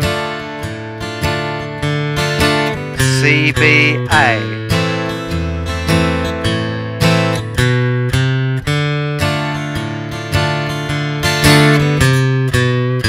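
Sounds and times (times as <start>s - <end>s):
acoustic guitar strumming: 0.0s - 13.0s.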